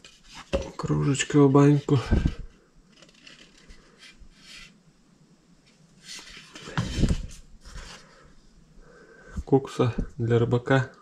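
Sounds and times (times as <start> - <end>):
hands rustling wooden pieces: 0.0 - 4.8.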